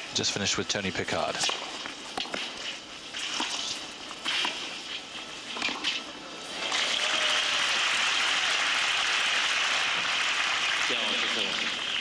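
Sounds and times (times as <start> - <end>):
racket hitting tennis ball: 1.4 - 2.6, 3.3 - 4.8, 5.5 - 6.0
crowd applause: 6.6 - 12.0.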